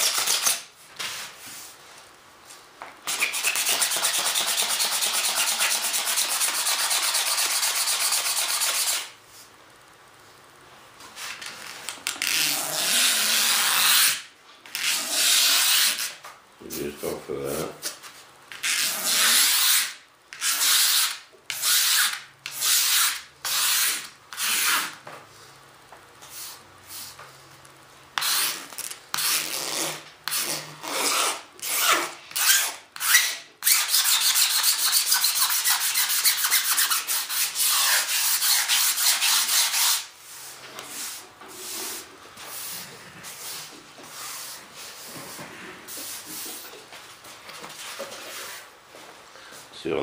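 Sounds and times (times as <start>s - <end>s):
razor blade scraping resin: 18.5s - 25.0s, 28.2s - 40.1s.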